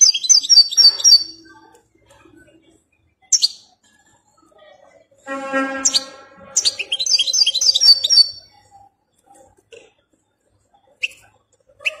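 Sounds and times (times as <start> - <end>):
finch twittering song: 0.0 - 1.5, 3.3 - 3.8, 5.8 - 8.6.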